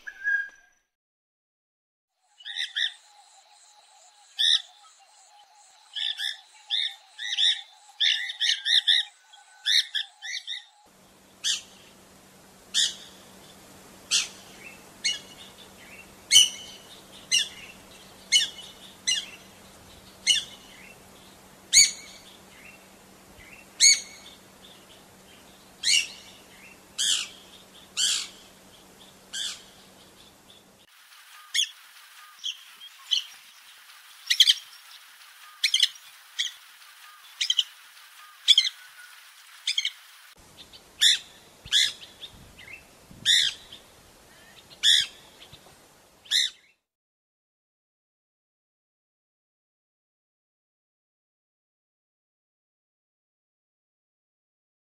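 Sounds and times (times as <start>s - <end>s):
bird sharp high-pitched calls: 0.0s - 0.8s, 5.9s - 10.8s, 11.4s - 11.8s, 12.7s - 13.2s, 14.1s - 15.5s, 16.3s - 19.5s, 21.7s - 22.3s, 23.8s - 24.4s, 25.8s - 26.4s, 27.0s - 28.5s, 29.3s - 30.0s, 35.4s - 40.0s, 41.0s - 42.2s, 43.2s - 45.6s, 46.3s - 46.7s.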